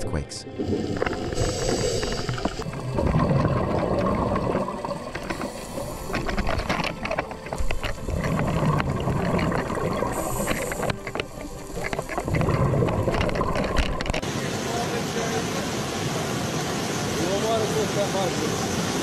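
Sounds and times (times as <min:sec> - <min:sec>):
regulator exhalation bubbling: 0:00.7 - 0:06.6, 0:08.1 - 0:11.2
crackly hiss of water: 0:00.8 - 0:19.0.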